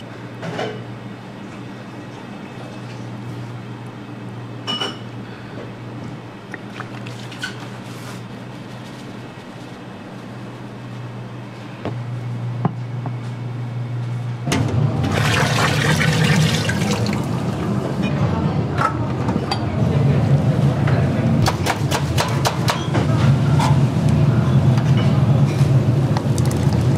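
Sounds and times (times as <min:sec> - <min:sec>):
water boiling: 0:15.0 - 0:17.7, 0:26.2 - 0:26.9.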